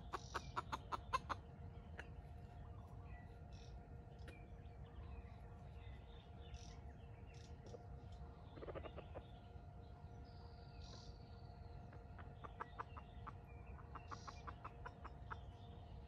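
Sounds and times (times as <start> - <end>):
junglefowl clucking: 0.0 - 2.1, 8.6 - 9.2, 11.9 - 15.6.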